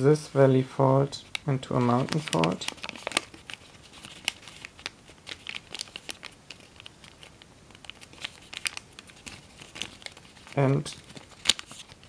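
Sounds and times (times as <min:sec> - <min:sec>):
foil paper crinkling: 0:01.3 - 0:12.0.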